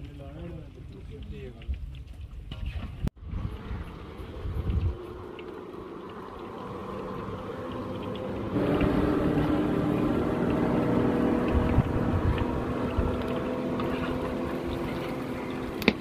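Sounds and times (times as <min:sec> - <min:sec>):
motor engine drone: 0:03.2 - 0:16.0
fish deep-frying in oil: 0:03.3 - 0:16.0.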